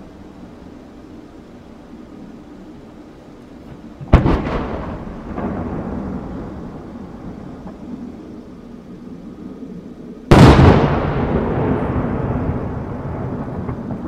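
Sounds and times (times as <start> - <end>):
rolling echo: 4.0 - 14.0.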